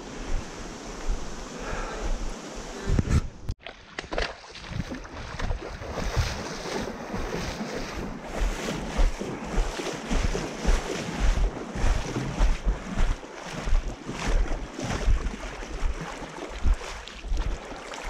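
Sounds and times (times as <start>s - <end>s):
wind buffeting microphone: 4.6s - 17.6s.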